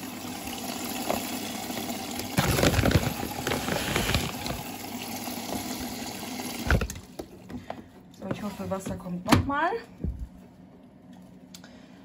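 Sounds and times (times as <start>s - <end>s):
water rushing into washing machine: 0.0s - 7.4s
plastic bag rustling and rattling: 2.3s - 4.7s.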